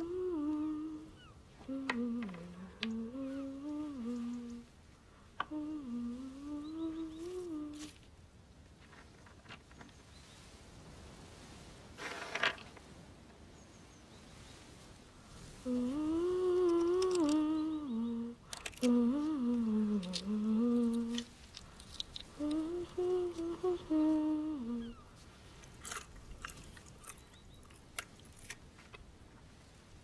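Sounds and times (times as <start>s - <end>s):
person humming a slow tune: 0.0s - 4.7s, 5.4s - 8.0s, 15.6s - 21.4s, 22.3s - 25.1s.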